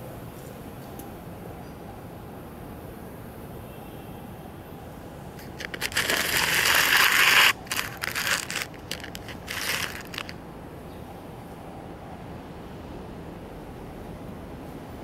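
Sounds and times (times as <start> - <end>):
crinkling rustle: 5.4 - 10.4.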